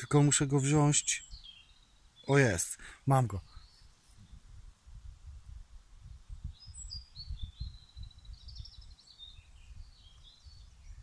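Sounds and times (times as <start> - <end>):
songbird warbling: 0.6 - 2.6.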